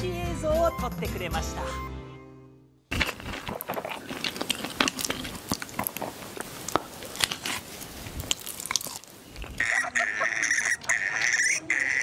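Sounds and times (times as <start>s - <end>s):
pig chewing crunchily: 2.9s - 12.0s.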